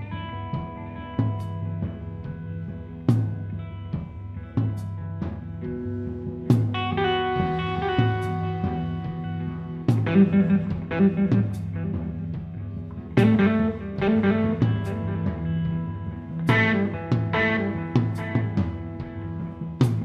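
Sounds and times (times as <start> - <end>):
drum kit playing: 0.0 - 20.0
electric guitar chords: 0.0 - 20.0.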